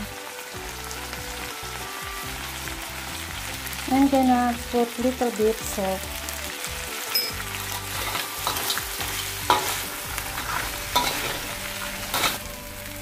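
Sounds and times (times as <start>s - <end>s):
crabs sizzling in a wok: 0.0s - 13.0s
metal spatula scraping a wok: 7.2s - 12.6s.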